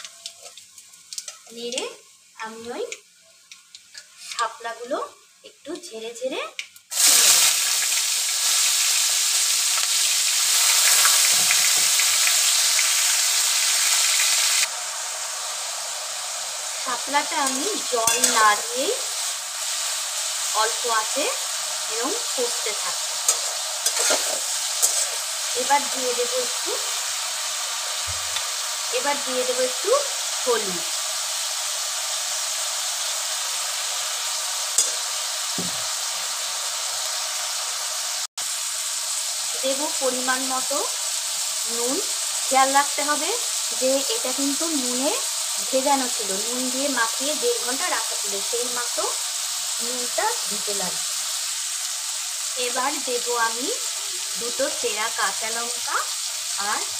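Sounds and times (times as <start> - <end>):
small crackles: 0.0 - 1.8, 2.9 - 4.5
stems sizzling in hot oil: 0.0 - 56.9.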